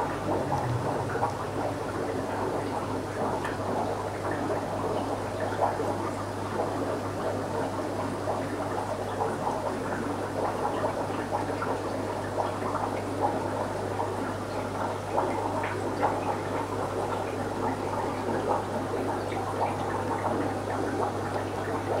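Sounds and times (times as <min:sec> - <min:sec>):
low electric hum: 0:00.0 - 0:03.8
aquarium water bubbling: 0:00.0 - 0:22.0.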